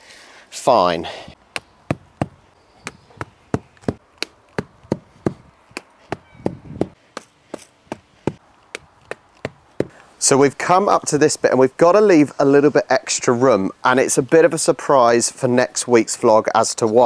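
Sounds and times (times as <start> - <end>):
rubber mallet knocking pegs: 1.5 - 10.0.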